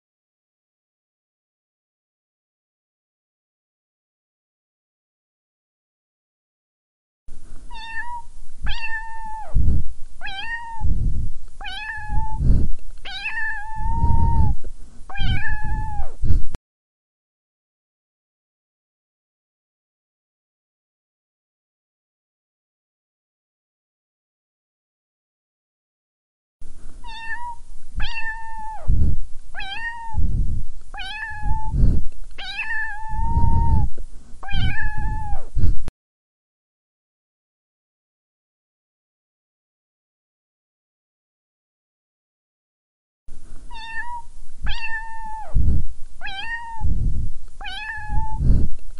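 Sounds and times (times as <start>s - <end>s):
low rumbling microphone noise: 7.3s - 16.6s, 26.6s - 35.9s, 43.3s - 48.9s
cat meowing: 7.7s - 9.6s, 10.2s - 10.9s, 11.6s - 12.4s, 13.1s - 16.2s, 27.0s - 28.9s, 29.6s - 30.2s, 31.0s - 31.8s, 32.4s - 35.5s, 43.7s - 45.6s, 46.2s - 46.9s, 47.6s - 48.4s.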